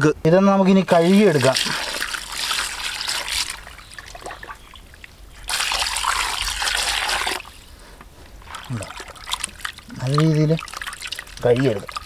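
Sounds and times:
water pouring into metal pot: 0:01.0 - 0:04.1, 0:05.4 - 0:07.5.

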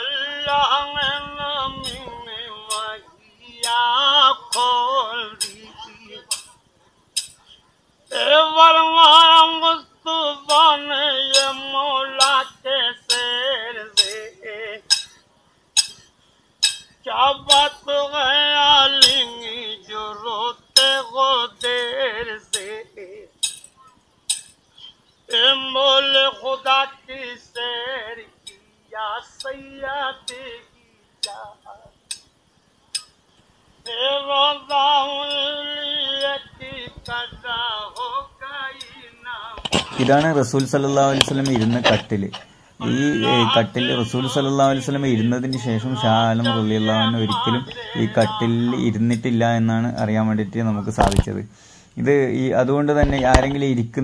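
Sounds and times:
person singing wavering melody: 0:00.0 - 0:06.6, 0:29.3 - 0:32.2, 0:33.8 - 0:40.8, 0:42.8 - 0:49.2
regular clinking beat: 0:11.3 - 0:11.6, 0:13.1 - 0:13.3, 0:14.0 - 0:14.3, 0:14.9 - 0:15.2, 0:15.8 - 0:16.9, 0:19.0 - 0:19.3, 0:23.4 - 0:24.6.

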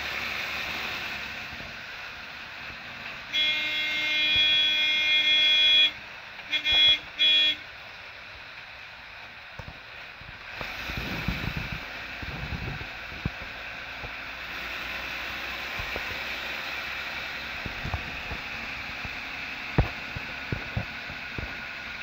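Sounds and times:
bus engine running: 0:00.0 - 0:22.0
road noise: 0:00.0 - 0:22.0
bus horn blast: 0:03.2 - 0:07.7.

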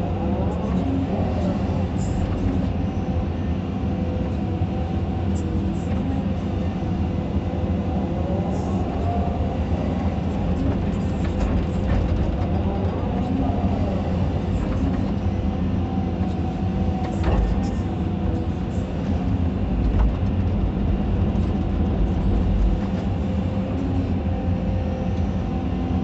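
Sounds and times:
diesel engine running under load: 0:00.0 - 0:26.0.

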